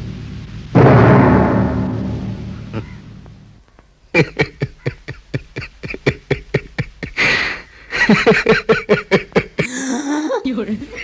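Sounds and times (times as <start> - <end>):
dramatic drum hit ringing: 0.7 - 3.2
boy laughing hard: 4.2 - 7.2, 8.0 - 10.4.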